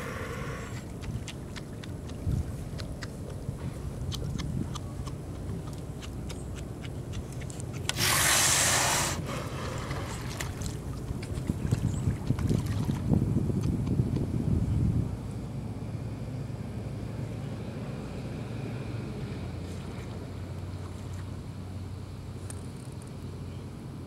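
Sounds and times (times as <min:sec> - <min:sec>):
sea lion hissing breath: 0:00.0 - 0:00.8, 0:07.9 - 0:10.1
choppy water: 0:00.0 - 0:05.8, 0:09.0 - 0:14.2
wind and water rumble: 0:00.0 - 0:24.0.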